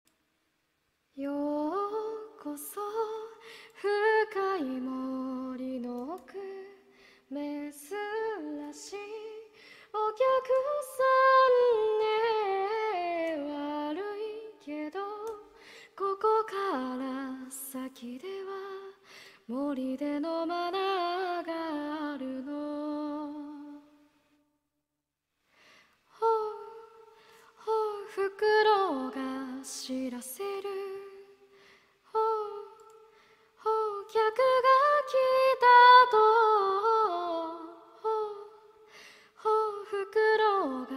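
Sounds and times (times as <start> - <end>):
woman singing a cappella: 1.1 - 24.3, 26.1 - 40.9.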